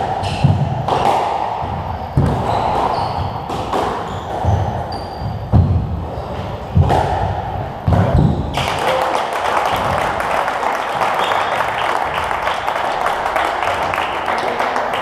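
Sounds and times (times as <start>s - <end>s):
squash ball hits: 0.0s - 8.7s
spectator applause: 8.6s - 15.0s.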